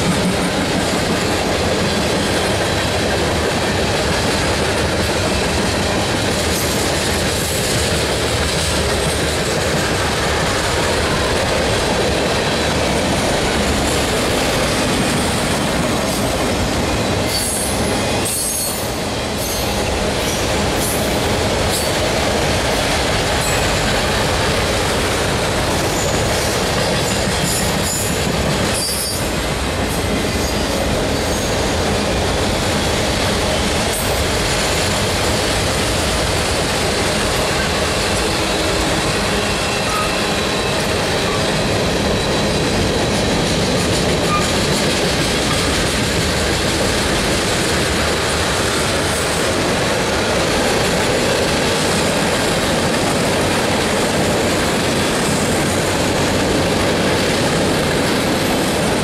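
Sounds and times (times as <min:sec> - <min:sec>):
freight train wheels rumbling: 0:00.0 - 0:59.0
high wheel squeals: 0:39.3 - 0:42.5.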